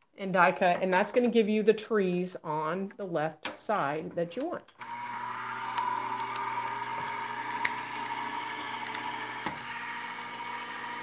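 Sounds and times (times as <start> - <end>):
die-cutting machine motor humming: 4.8 - 11.0.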